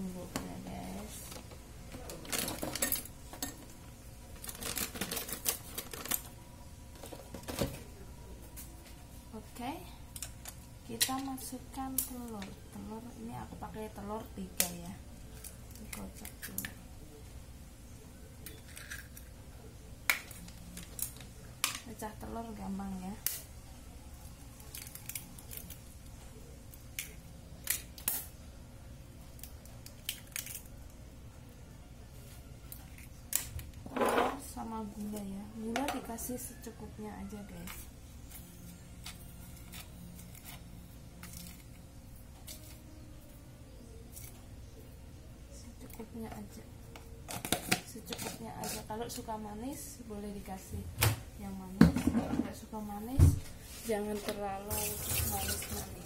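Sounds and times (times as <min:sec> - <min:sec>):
kitchen utensils clicking and clattering: 0:02.1 - 0:03.7
eggshells cracking: 0:24.6 - 0:26.0, 0:29.3 - 0:30.8.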